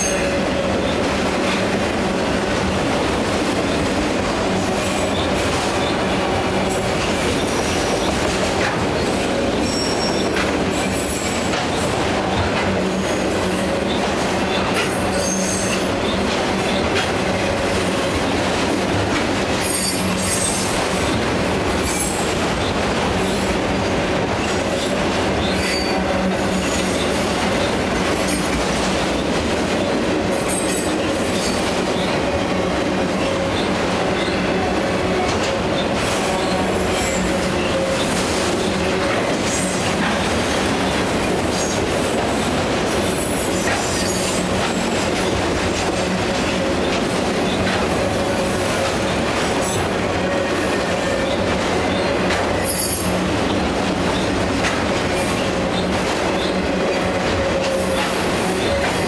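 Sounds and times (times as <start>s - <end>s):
steel wheels rumbling on rail: 0.0s - 59.0s
high-pitched wheel squeals: 9.6s - 10.3s.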